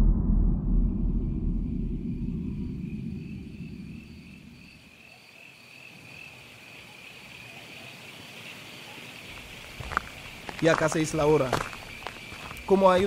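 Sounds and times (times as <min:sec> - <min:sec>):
low rumble: 0:00.0 - 0:05.0
crickets chirring: 0:01.7 - 0:13.0.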